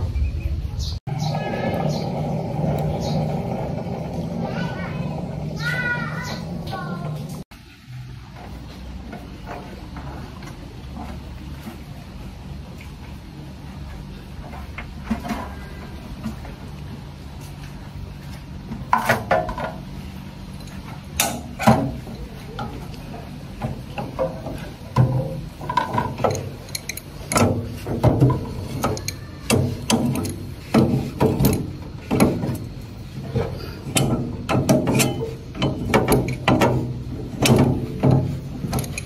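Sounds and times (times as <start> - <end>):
crusher motor hum: 1.2 - 7.4
knocks and clatter of crusher: 20.9 - 39.0.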